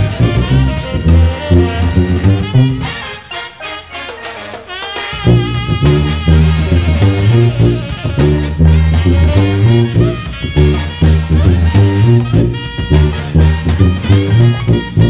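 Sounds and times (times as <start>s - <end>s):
sousaphone bass line: 0.0s - 3.2s, 5.1s - 15.0s
drum kit cymbal and hi-hat: 0.0s - 3.3s, 4.3s - 15.0s.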